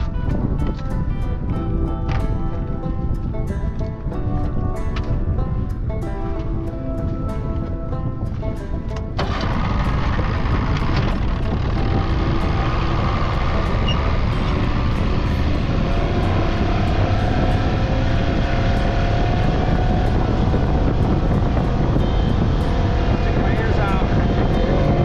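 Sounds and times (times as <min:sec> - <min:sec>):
outboard motor running: 0:09.0 - 0:25.0.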